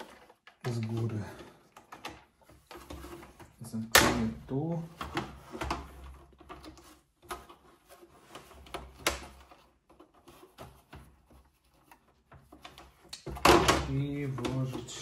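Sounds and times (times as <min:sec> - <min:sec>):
plastic clicks and rattles: 0:00.0 - 0:04.3.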